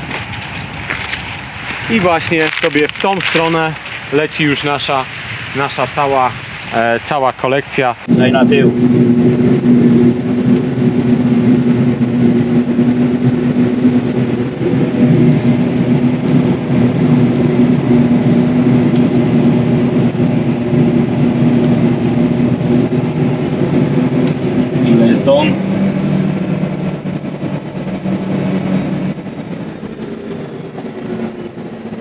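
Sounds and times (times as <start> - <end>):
forage harvester engine drone: 0.0 - 32.0.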